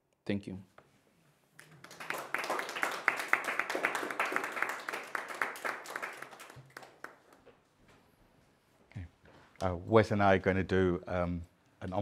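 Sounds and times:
audience applause: 0:01.6 - 0:07.4.

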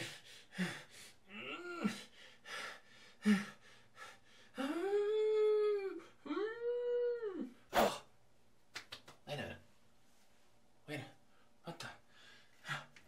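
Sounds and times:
short vocal sounds: 0:04.6 - 0:08.2.

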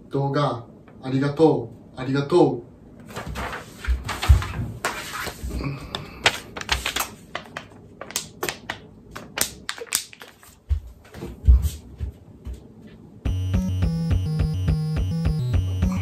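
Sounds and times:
paper crinkling: 0:06.2 - 0:10.6.

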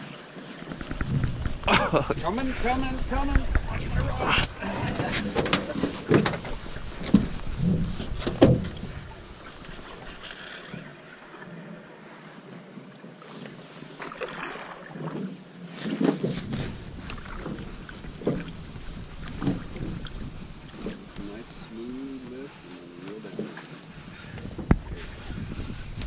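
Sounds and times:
water splashing against boat hull: 0:00.1 - 0:11.0, 0:13.3 - 0:26.0
knocks against boat: 0:04.9 - 0:09.0.

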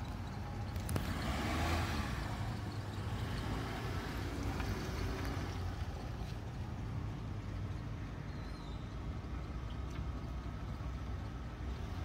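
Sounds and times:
background noise: 0:00.0 - 0:12.0
vehicle engine running: 0:00.0 - 0:12.0.

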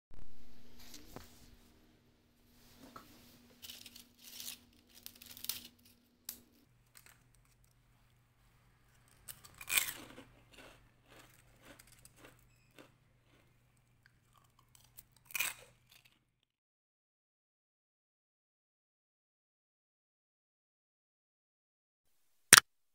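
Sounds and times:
faint steady hum: 0:00.2 - 0:15.2
crunching of crisp cookies: 0:03.5 - 0:16.5.

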